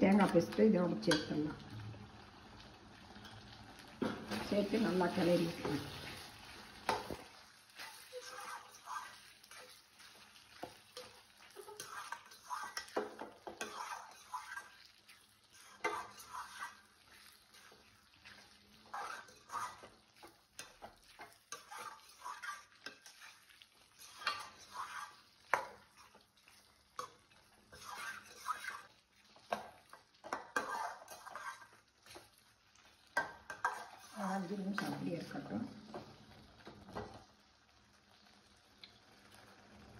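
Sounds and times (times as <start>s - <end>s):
spoon stirring thick gravy: 3.2s - 35.0s
spoon clinking against pan: 10.6s - 14.7s.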